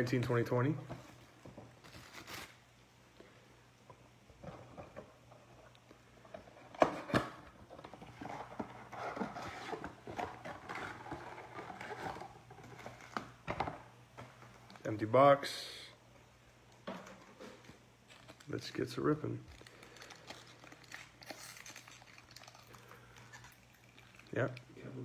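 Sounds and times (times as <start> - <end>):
rustling of card packs: 6.5 - 13.5, 17.0 - 25.0.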